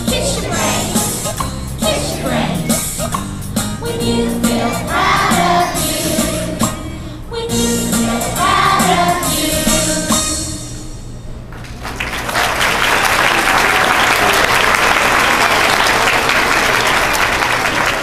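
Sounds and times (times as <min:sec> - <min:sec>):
children's choir singing: 0:00.0 - 0:03.0, 0:03.8 - 0:10.6
audience applause: 0:11.6 - 0:18.0.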